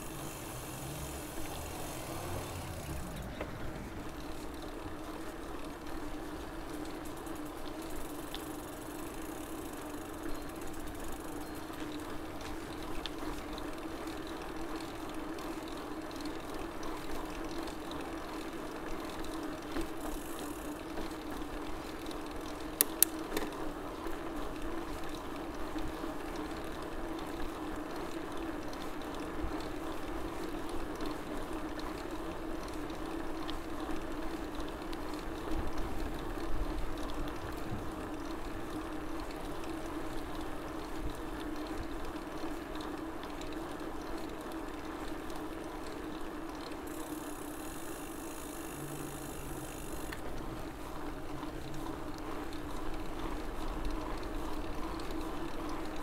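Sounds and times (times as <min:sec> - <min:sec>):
bicycle rolling with hum: 0:00.0 - 0:56.0
sharp clicks: 0:22.8 - 0:23.5.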